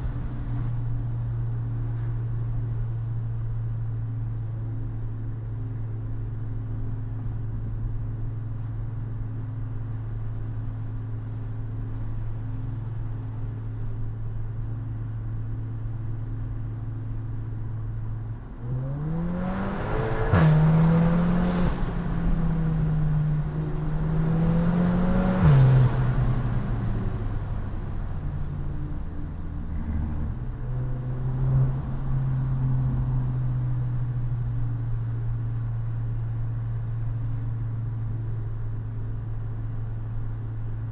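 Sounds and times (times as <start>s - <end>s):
car engine accelerating: 18.4s - 37.6s.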